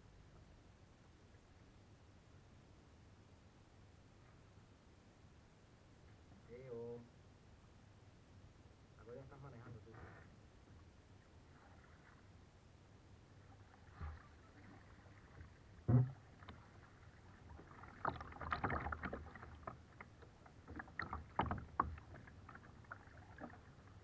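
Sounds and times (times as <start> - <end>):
kayak paddles splashing in water: 13.4 - 24.0
water drips: 14.0 - 24.0.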